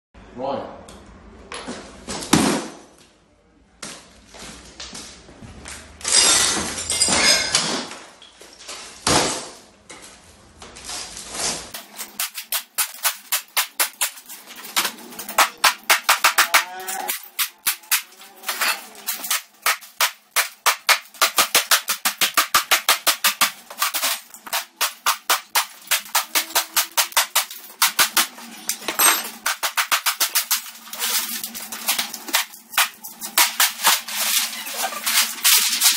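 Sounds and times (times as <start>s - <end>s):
glass and plastic smashing: 6.0s - 9.5s, 11.8s - 35.9s
rapid sharp knocks: 14.8s - 16.6s, 19.6s - 28.3s.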